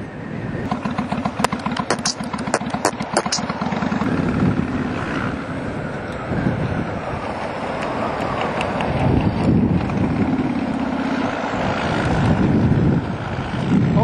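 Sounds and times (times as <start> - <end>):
wind buffeting microphone: 0.0 - 14.0
motorcycle engine running: 0.7 - 5.6.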